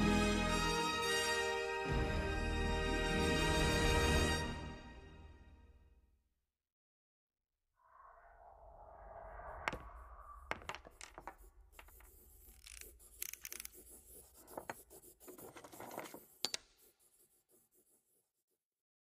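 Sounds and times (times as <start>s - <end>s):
pen scribbling on paper: 10.7s - 18.8s.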